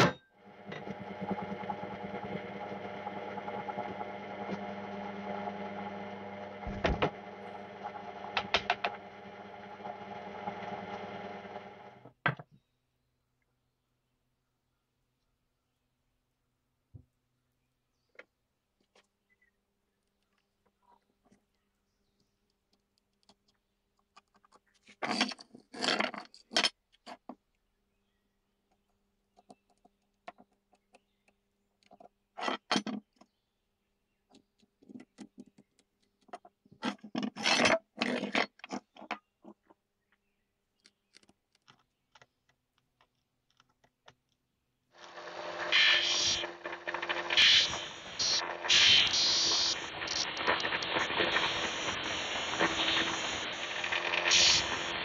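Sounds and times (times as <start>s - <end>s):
electric disc sander humming: 0.4s - 12.0s, 45.0s - 55.0s
wood grinding on sander: 0.4s - 12.0s, 45.0s - 55.0s
wood scraping and rubbing: 45.0s - 55.0s.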